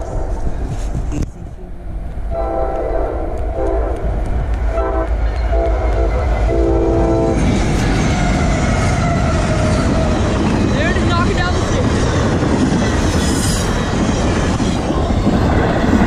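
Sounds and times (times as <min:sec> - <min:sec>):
locomotive engines and wheels rumbling: 0:00.0 - 0:16.0
locomotive air horn blasts: 0:02.3 - 0:04.0, 0:04.8 - 0:07.5.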